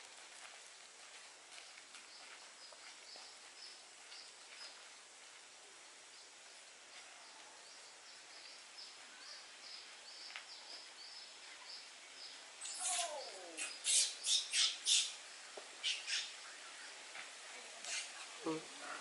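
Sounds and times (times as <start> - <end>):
small birds chirping: 1.6 - 19.0
falling bird call: 12.6 - 15.2.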